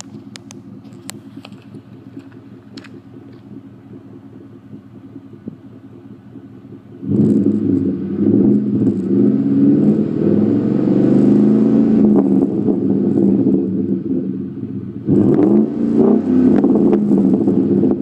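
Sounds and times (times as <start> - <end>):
truck engine idling: 0.0 - 7.1
loud rough exhaust revving: 0.0 - 18.0.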